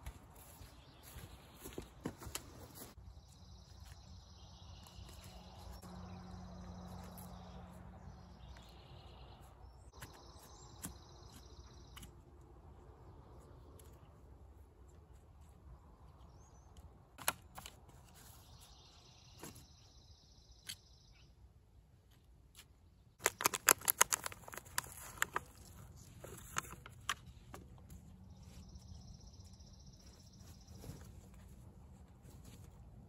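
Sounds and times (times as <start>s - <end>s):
plastic pot crackling: 23.2s - 27.3s.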